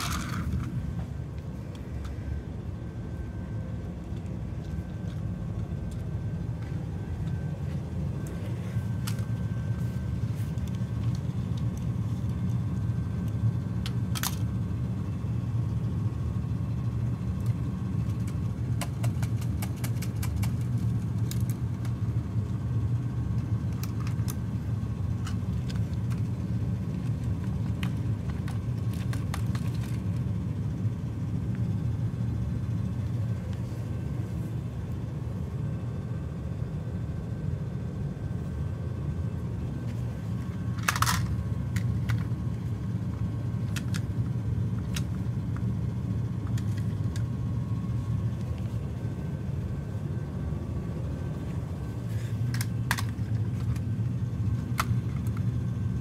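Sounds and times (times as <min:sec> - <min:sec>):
plastic toys clicking: 0:00.0 - 0:00.7, 0:18.1 - 0:22.0, 0:40.8 - 0:42.3, 0:43.6 - 0:44.1, 0:52.5 - 0:53.8
drum fan running: 0:00.0 - 0:56.0.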